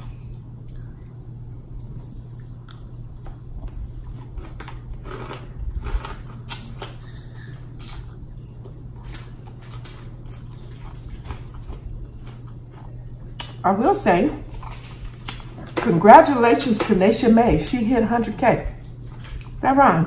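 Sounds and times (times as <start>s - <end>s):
low hum: 0.0s - 20.0s
person chewing: 1.7s - 13.6s.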